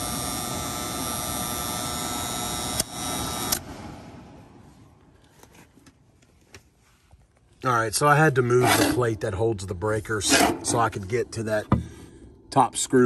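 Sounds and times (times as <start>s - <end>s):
electrical hum and buzz: 0.0s - 6.2s.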